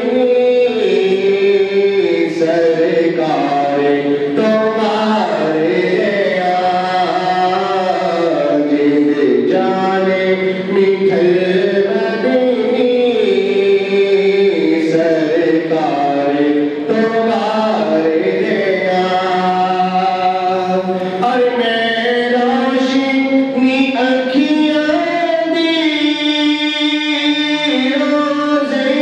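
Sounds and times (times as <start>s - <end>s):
man singing into a microphone: 0.0s - 29.0s.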